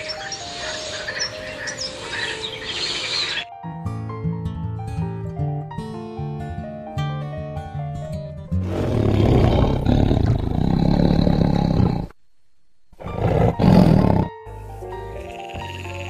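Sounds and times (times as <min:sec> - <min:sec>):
tiger roaring: 0:08.6 - 0:12.1, 0:13.0 - 0:14.3.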